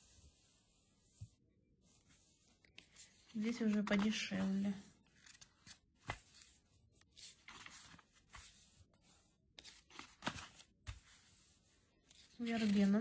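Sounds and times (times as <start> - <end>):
catalogue pages turning: 2.6 - 11.4, 12.0 - 13.0.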